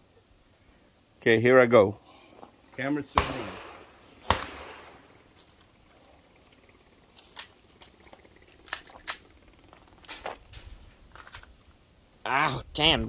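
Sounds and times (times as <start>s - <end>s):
pistol shot with echo: 3.2s - 5.1s.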